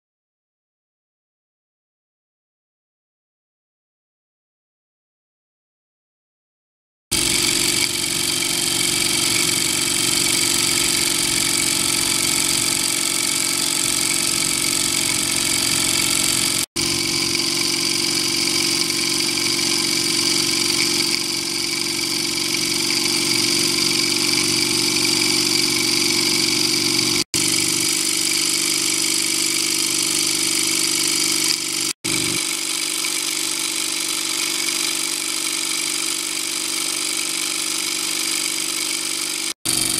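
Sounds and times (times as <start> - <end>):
model steam engine running: 7.1 - 39.9
steam hissing: 7.2 - 31.9.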